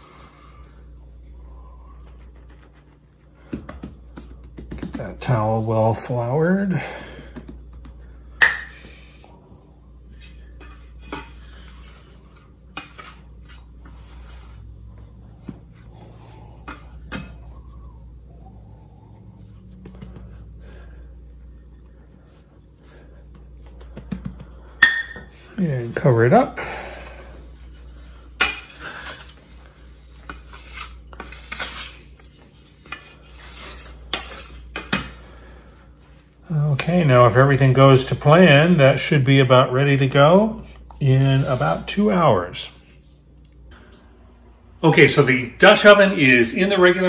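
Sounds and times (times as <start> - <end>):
soft rubbing: 8.9 - 24.0
bench scraper scraping stone counter: 30.2 - 32.2.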